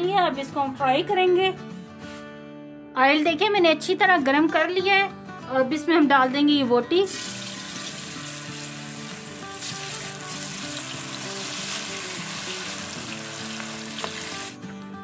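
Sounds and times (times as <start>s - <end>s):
background music: 0.0s - 15.0s
beef sizzling in hot oil: 7.1s - 14.6s.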